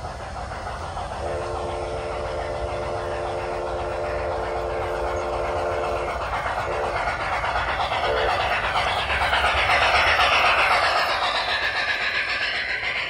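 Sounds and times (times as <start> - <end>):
model train running noise: 0.0 - 13.0
model train steam whistle: 1.2 - 7.2.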